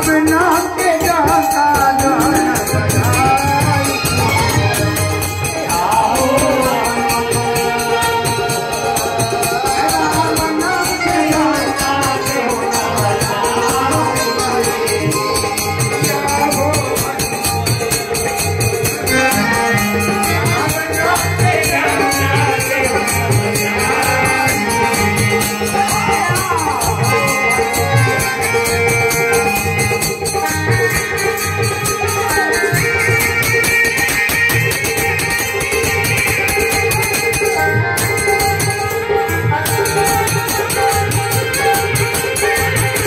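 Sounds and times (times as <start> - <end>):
men singing: 0.0 - 33.2
harmonium: 0.0 - 43.0
rattling percussion: 0.0 - 43.0.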